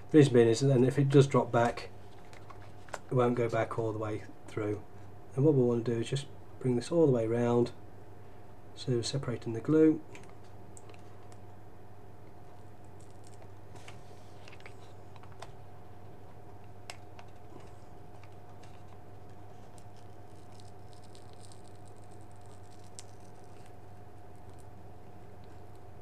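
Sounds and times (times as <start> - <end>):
low hum with thin tone: 0.0 - 26.0.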